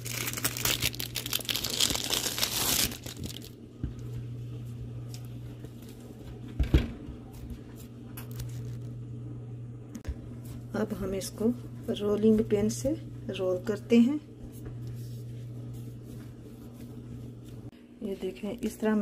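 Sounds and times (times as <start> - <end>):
hands rustling pastry dough: 0.0 - 3.7, 14.4 - 17.7
steady low hum: 2.9 - 19.0.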